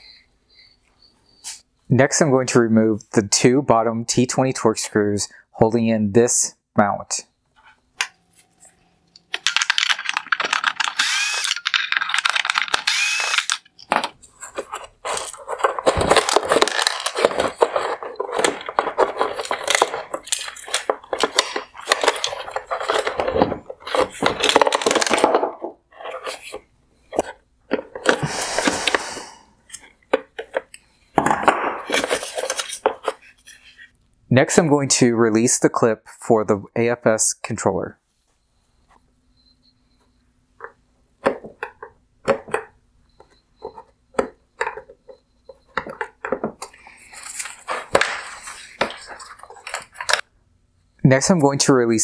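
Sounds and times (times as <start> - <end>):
plastic parts clattering and rubbing: 7.6 - 34.0, 40.6 - 50.3
cordless screwdriver motor whine: 10.8 - 11.7, 12.7 - 13.7.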